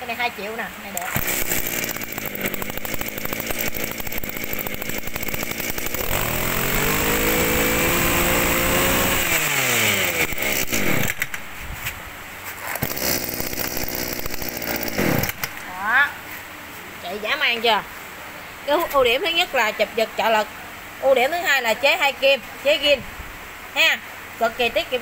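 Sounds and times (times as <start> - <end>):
brush cutter engine revving: 1.0 - 11.5, 12.6 - 15.7.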